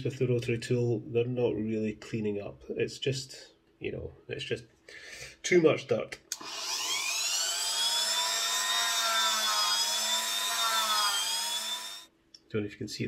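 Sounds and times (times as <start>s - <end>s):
rotary tool whining: 6.4s - 12.1s.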